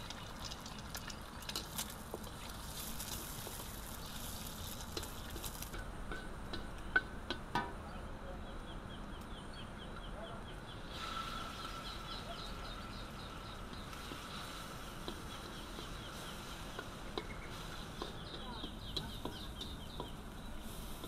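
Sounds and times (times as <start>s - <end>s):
wooden spatula tapping a wok: 5.7s - 7.7s, 16.7s - 20.2s.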